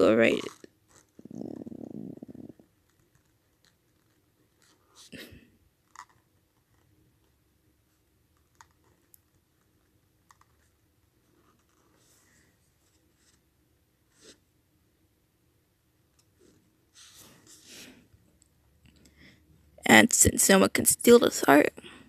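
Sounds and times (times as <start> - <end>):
pen scratching on paper: 14.1 - 14.4.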